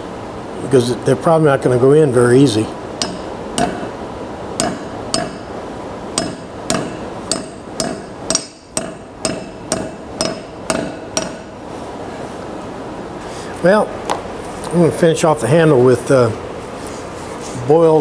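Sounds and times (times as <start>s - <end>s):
hammer striking metal wedge: 3.0s - 4.0s, 4.6s - 5.6s, 6.2s - 11.6s.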